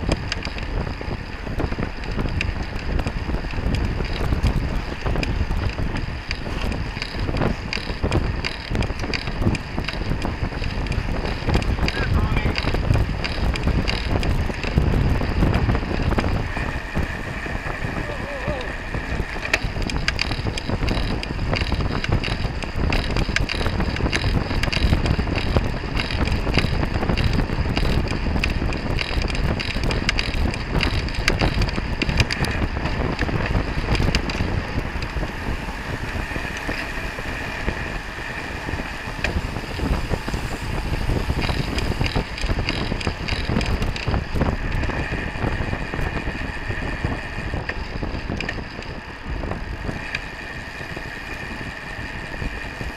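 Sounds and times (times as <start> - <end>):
bike clicking and rattling: 0.0 - 52.9
tyres humming on asphalt: 0.0 - 52.9
wind rushing over microphone: 0.0 - 52.9.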